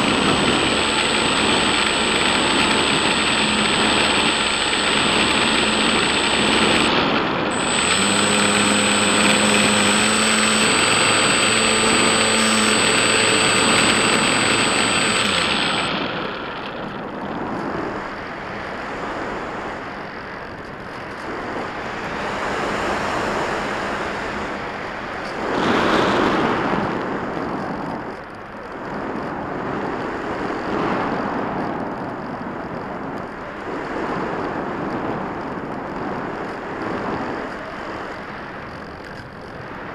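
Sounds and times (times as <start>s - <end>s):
electric motor and propeller whining: 0.0s - 18.2s.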